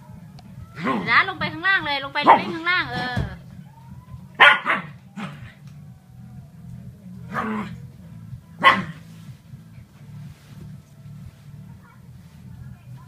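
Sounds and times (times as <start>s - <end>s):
small dog barking: 2.2s - 2.6s, 4.4s - 5.5s, 7.3s - 7.8s, 8.6s - 9.1s.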